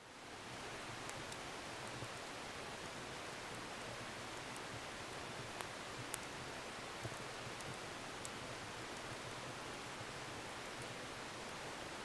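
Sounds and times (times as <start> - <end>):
fire crackling pops: 5.5 - 6.3.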